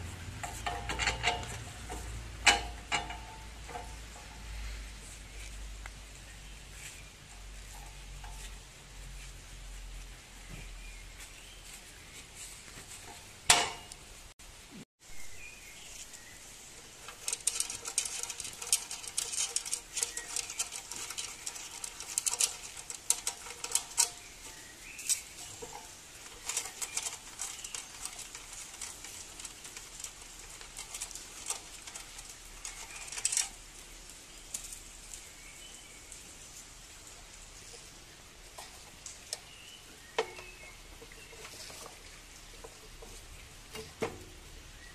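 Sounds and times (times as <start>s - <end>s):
light clicks and rattles of parts: 0.0s - 6.0s, 16.6s - 35.4s, 36.0s - 44.8s.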